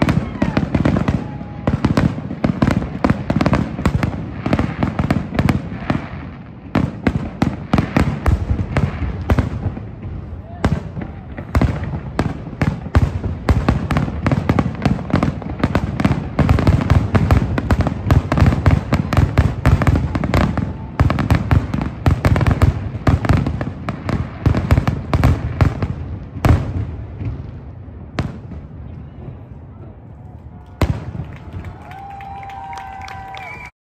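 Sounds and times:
fireworks bursting: 0.0 - 29.6, 30.7 - 33.7.

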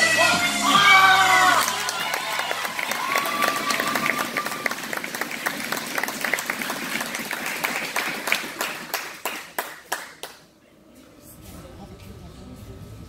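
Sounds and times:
crowd applauding: 0.9 - 10.4.

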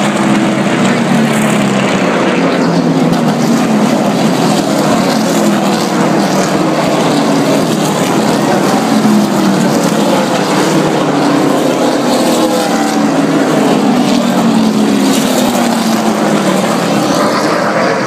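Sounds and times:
race car engines roaring past: 0.0 - 18.0.

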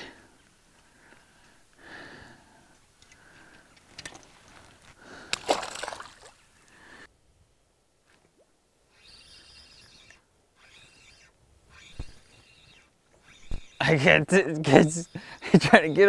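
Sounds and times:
fish splashing in water: 5.3 - 6.4.

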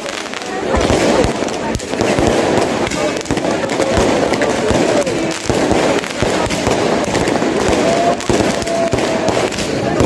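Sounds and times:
fireworks bangs and pops: 0.0 - 10.0.

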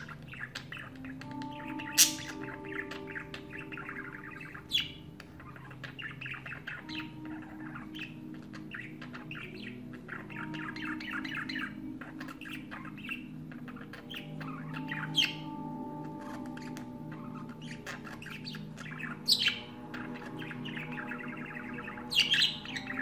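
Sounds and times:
budgerigar warbling chatter: 0.0 - 23.0.

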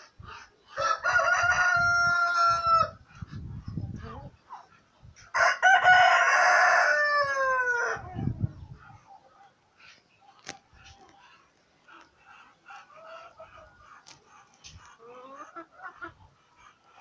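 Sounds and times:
rooster crowing: 0.8 - 3.0, 5.4 - 8.0.

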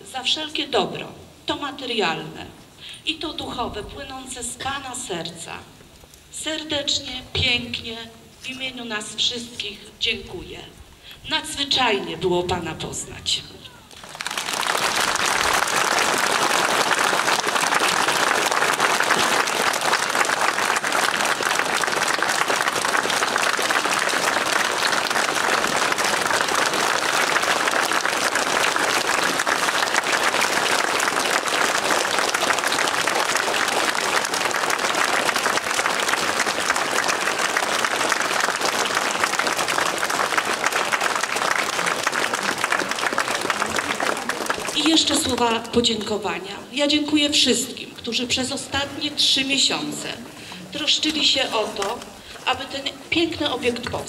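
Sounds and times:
crowd applauding: 13.7 - 45.7.

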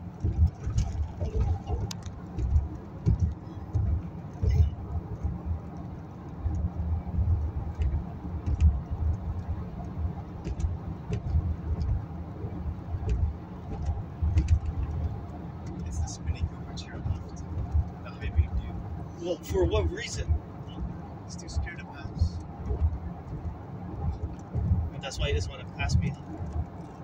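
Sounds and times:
tyres and engine rumble in car: 0.0 - 27.0.

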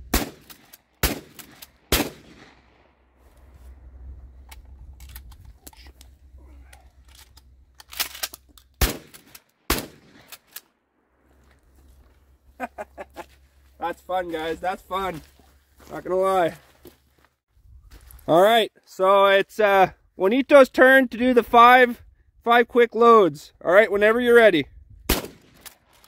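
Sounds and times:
shotgun blasts: 0.0 - 3.0, 8.8 - 10.4, 25.1 - 25.8
shotgun loading clicks and knocks: 4.3 - 9.5.

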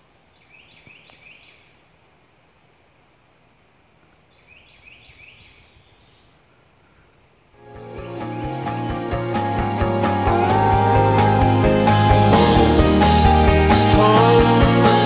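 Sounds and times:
bird singing: 0.0 - 2.4, 3.7 - 8.7.

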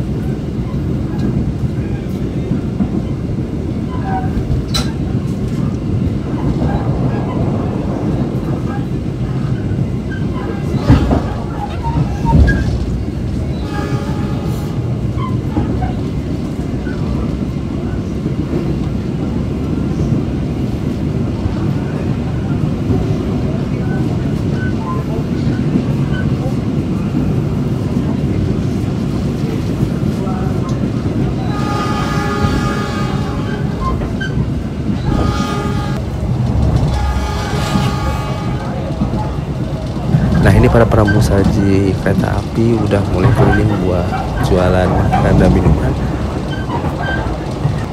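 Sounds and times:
train wheels rumbling on rail: 0.0 - 47.9
train knock: 10.3 - 17.2, 31.0 - 47.9
train horn: 13.6 - 15.0, 31.4 - 33.9, 35.0 - 36.0, 36.8 - 39.0.

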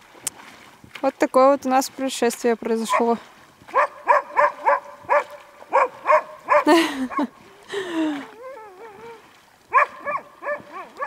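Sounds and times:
dog yelping: 3.7 - 7.3, 8.4 - 11.0
dog whining and whimpering: 8.2 - 9.2.

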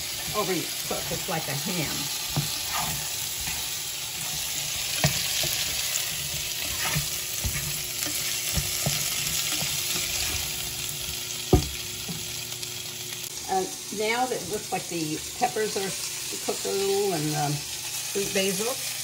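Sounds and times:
vegetables sizzling in frying pan: 0.0 - 19.0
spatula scraping and tapping pan: 0.1 - 12.3.

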